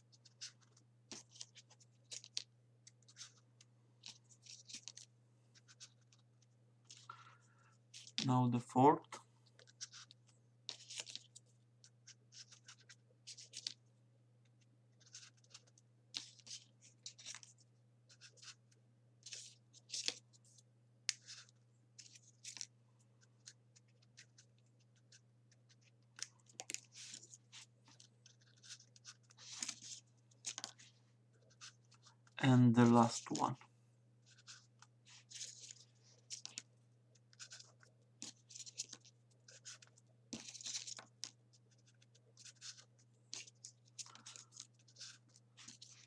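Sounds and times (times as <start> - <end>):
paper scratches and rustles: 0.0 - 3.4, 4.0 - 6.2, 9.6 - 13.8, 15.0 - 18.6, 21.1 - 22.7, 23.4 - 32.4, 34.2 - 46.0.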